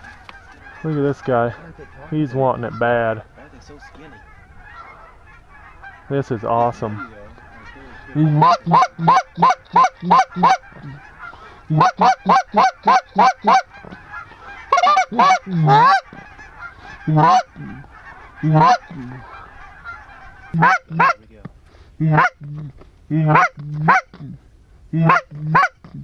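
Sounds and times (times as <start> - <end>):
duck call honking notes: 6.8 - 21.3, 22.0 - 24.3, 25.0 - 26.0.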